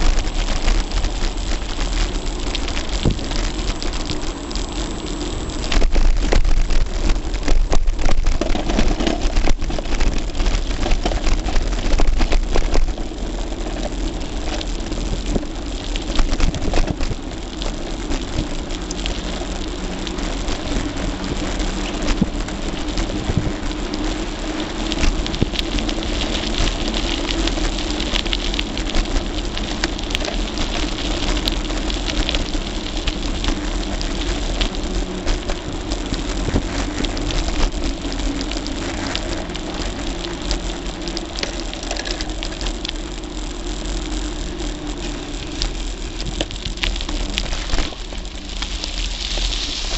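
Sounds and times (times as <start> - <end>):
bike rattling and clicking: 0.0 - 49.9
bike tyres rushing over asphalt: 0.0 - 49.9.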